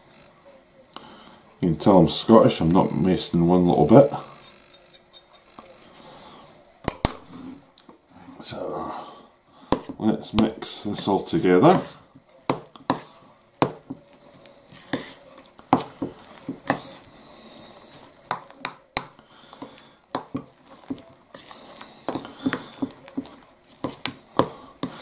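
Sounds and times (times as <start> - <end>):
spoon scraping in bowl: 4.3 - 6.0, 20.6 - 24.1.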